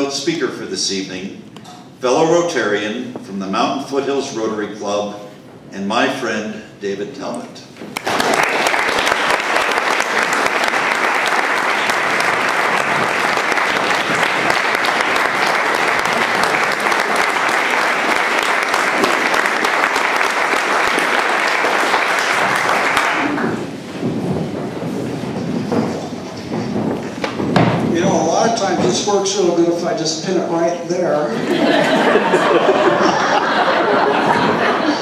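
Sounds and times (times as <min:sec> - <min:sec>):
audience applauding: 0:07.9 - 0:23.8.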